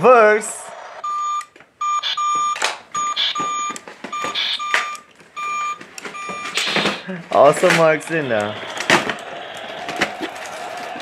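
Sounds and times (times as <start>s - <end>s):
toy reverse beeper beeps: 1.0s - 7.1s.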